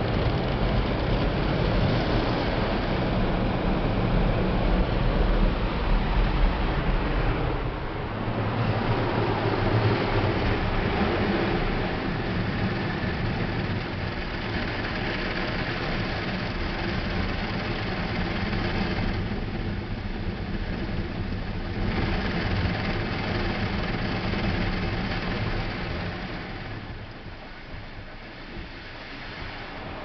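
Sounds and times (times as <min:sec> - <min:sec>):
steady low hum: 0:00.0 - 0:30.0
water spraying against car: 0:08.1 - 0:30.0.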